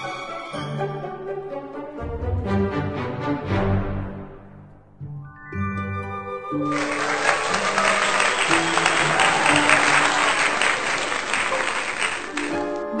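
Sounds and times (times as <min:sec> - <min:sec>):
music: 0:00.0 - 0:13.0
audience applauding: 0:06.7 - 0:13.0.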